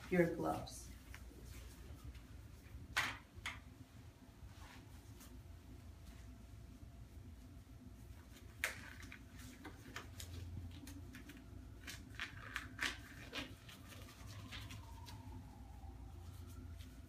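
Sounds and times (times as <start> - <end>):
low room hum: 0.0 - 17.0
disposable gloves rustling and snapping: 8.0 - 17.0.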